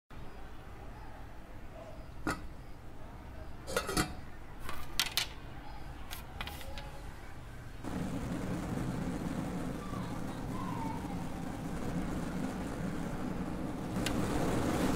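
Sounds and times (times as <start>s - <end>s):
street traffic rumble: 0.1s - 14.9s
steel pots and utensils clinking: 2.2s - 2.5s, 3.7s - 5.4s.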